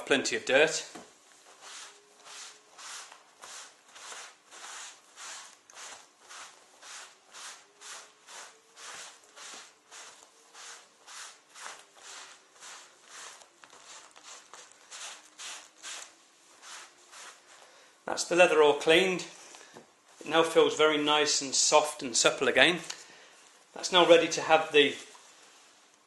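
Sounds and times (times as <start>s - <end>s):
cloth rubbing on leather: 1.3s - 17.6s.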